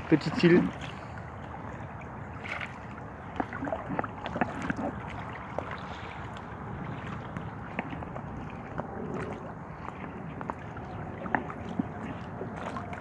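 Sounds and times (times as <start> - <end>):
lake waves lapping at shore: 0.0 - 13.0
short splashes and knocks: 0.0 - 13.0
wind on microphone: 0.8 - 13.0.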